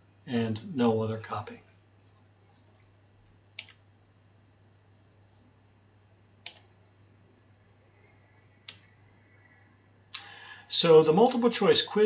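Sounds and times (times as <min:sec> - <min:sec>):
low steady hum: 0:00.0 - 0:12.0
faint computer mouse clicks: 0:03.5 - 0:03.9, 0:06.4 - 0:07.2, 0:08.6 - 0:09.0.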